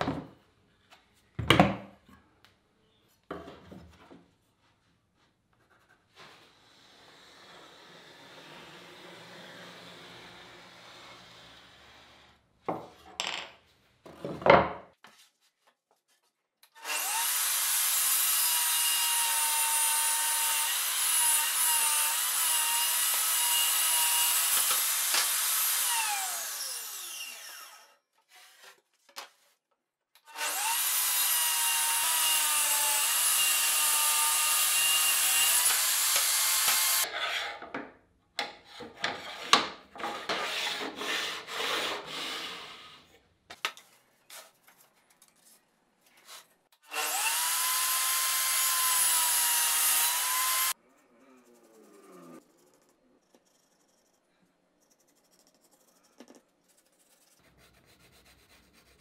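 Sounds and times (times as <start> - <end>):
power saw cutting plywood: 6.6 - 12.4, 16.8 - 28.0, 30.3 - 37.6, 39.1 - 43.1, 46.8 - 50.8.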